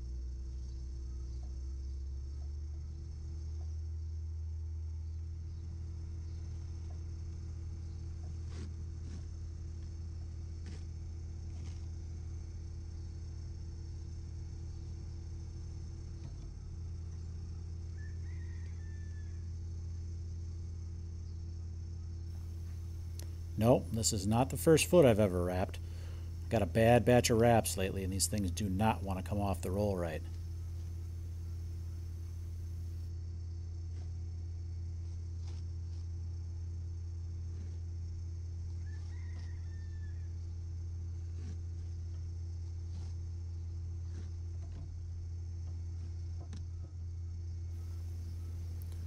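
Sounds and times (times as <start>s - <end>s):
steady low hum: 0.0s - 18.3s, 19.4s - 38.8s, 40.4s - 49.0s
farm machinery humming: 22.3s - 33.1s, 47.8s - 49.0s.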